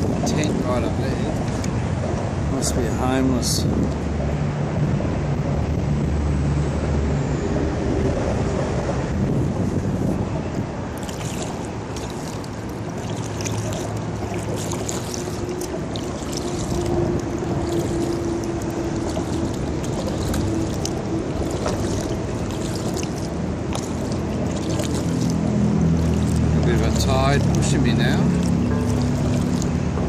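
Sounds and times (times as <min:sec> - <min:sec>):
water splashes and drips: 0:00.0 - 0:04.6, 0:10.5 - 0:30.0
paddle strokes in water: 0:10.9 - 0:29.8.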